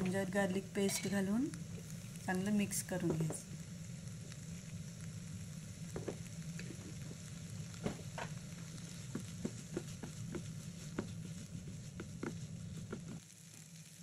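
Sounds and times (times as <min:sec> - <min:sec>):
onions sizzling in a frying pan: 0:00.0 - 0:14.0
wooden spatula scraping a pan: 0:07.9 - 0:13.2.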